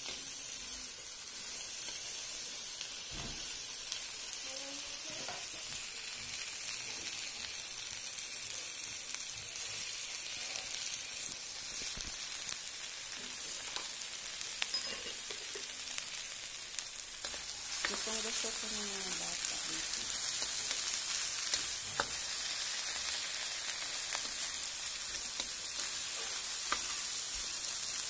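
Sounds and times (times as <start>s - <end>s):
okra sizzling in oil: 0.0s - 28.0s
spatula scraping a wok: 19.8s - 28.0s.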